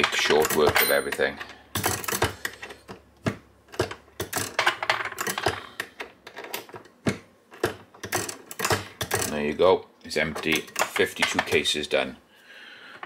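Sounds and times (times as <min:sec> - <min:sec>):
brass cases handled: 0:00.0 - 0:09.3.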